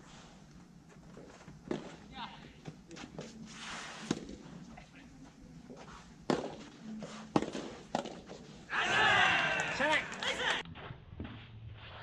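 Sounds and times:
tennis ball hit by rackets: 1.7 - 2.0, 4.1 - 4.4, 6.3 - 6.7, 7.3 - 8.4.

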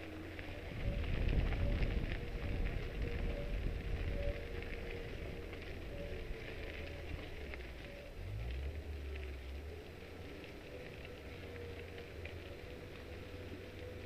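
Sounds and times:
wind on microphone: 0.0 - 9.7.

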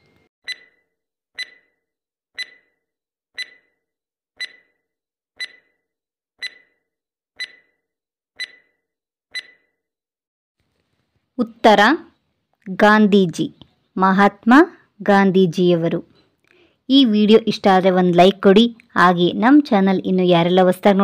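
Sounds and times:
countdown timer ticks: 1.4 - 1.6, 2.4 - 2.7, 3.4 - 3.7, 4.4 - 4.7, 5.4 - 5.7, 6.4 - 6.7, 7.4 - 7.7, 8.4 - 8.7, 9.4 - 9.6.

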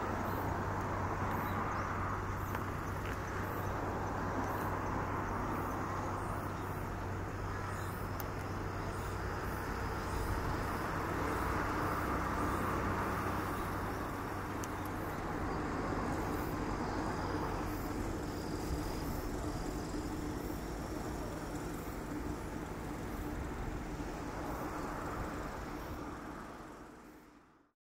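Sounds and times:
constant low hum: 0.0 - 27.5.

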